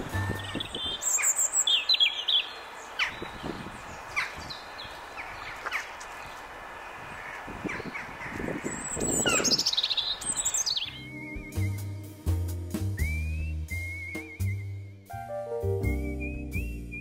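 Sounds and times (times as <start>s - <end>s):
robin singing: 0.0s - 12.2s.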